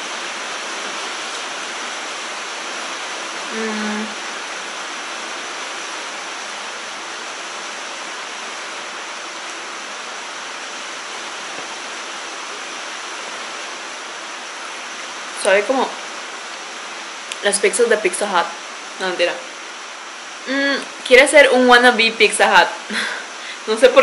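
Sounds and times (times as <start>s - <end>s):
steady rain: 0.0s - 24.0s
person humming: 3.5s - 4.3s, 20.4s - 20.9s.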